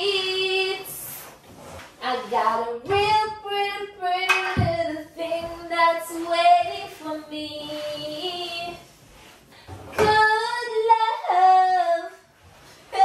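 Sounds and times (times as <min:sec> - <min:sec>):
woman singing unaccompanied: 0:02.0 - 0:08.9, 0:09.9 - 0:12.3.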